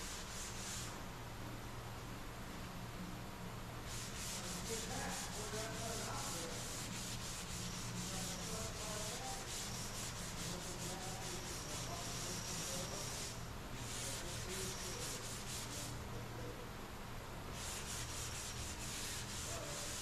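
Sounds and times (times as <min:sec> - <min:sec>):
sanding block rasping strokes: 0:00.0 - 0:01.0, 0:03.8 - 0:15.9, 0:17.5 - 0:20.0.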